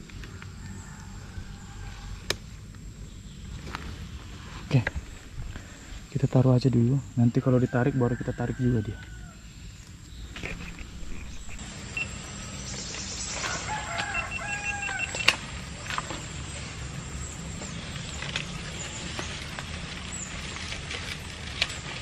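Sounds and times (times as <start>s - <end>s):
low background rumble: 0.0s - 22.0s
rooster crowing: 0.3s - 2.3s, 7.4s - 9.7s, 13.2s - 17.3s.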